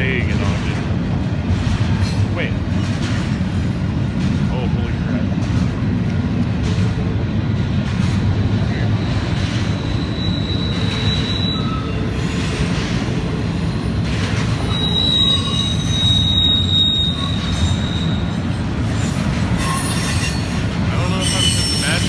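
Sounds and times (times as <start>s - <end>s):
train cars rumbling: 0.0s - 22.0s
high wheel squeal: 8.8s - 12.7s, 13.5s - 22.0s.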